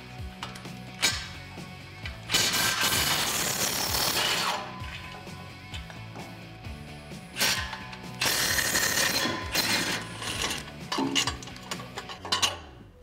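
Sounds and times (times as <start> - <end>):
impact wrench hammering: 2.3 - 5.2, 7.4 - 12.5.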